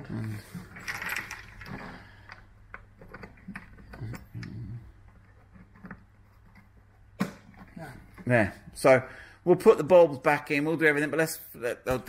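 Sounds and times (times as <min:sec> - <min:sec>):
plastic clicks and scraping: 0:00.8 - 0:08.2.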